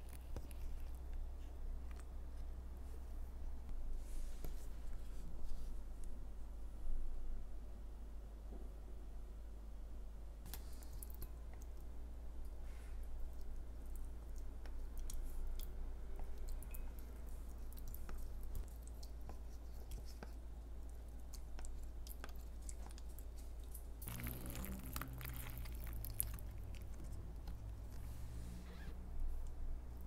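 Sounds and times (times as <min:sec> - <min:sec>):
steady low hum: 0:00.0 - 0:30.0
person chewing food: 0:13.2 - 0:28.0.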